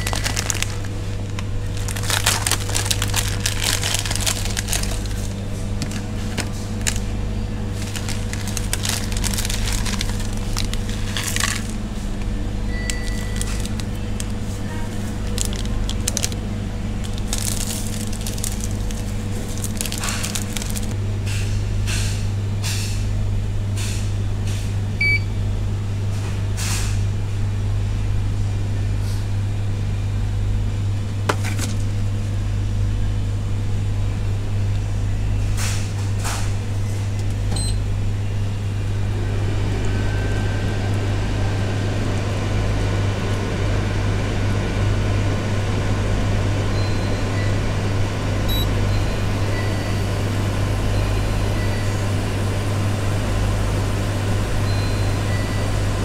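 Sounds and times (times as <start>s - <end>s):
seasoning packets crinkling: 0.0s - 11.8s, 12.9s - 16.4s, 17.0s - 21.0s
machinery hum: 0.0s - 56.0s.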